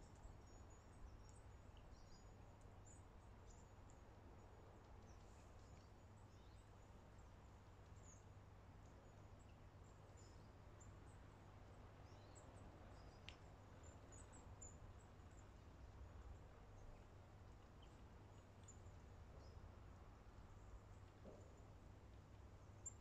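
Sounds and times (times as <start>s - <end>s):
faint click: 12.3s - 14.5s.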